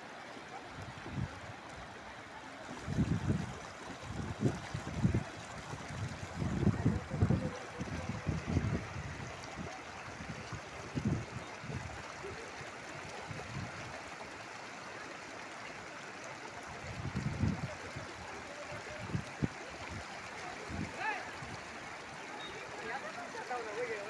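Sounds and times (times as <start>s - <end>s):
floodwater rushing: 0.0s - 24.0s.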